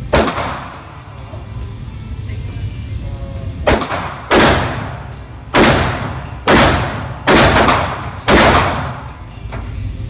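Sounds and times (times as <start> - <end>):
pistol shots echoing indoors: 0.0 - 1.1, 3.6 - 9.3.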